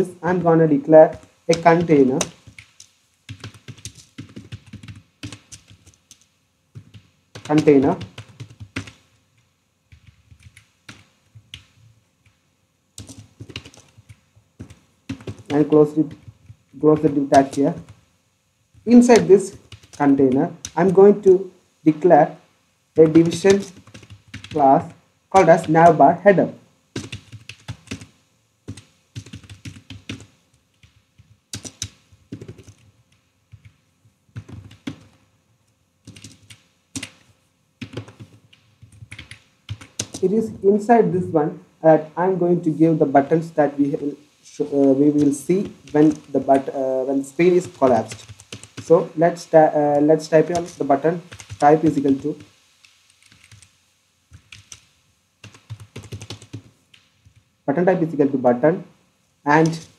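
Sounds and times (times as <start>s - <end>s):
computer keyboard typing: 0.0s - 12.4s, 13.0s - 18.1s, 18.7s - 22.4s, 23.0s - 35.2s, 36.0s - 40.8s, 43.2s - 53.7s, 54.3s - 57.5s, 59.5s - 59.9s.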